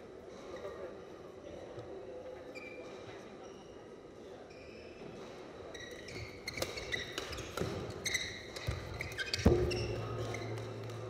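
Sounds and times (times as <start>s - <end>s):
shoes squeaking on court: 4.5s - 10.8s
rackets hitting shuttlecock: 6.4s - 11.0s.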